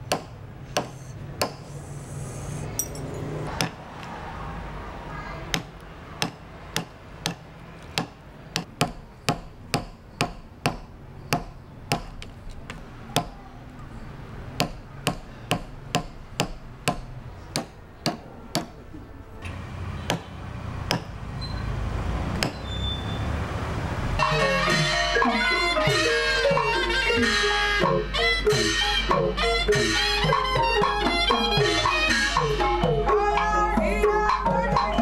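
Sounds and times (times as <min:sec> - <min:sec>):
wooden mallet tapping steel punch: 0:00.1 - 0:01.6, 0:05.5 - 0:12.3, 0:14.6 - 0:18.8, 0:20.9 - 0:21.1
music: 0:24.2 - 0:35.0.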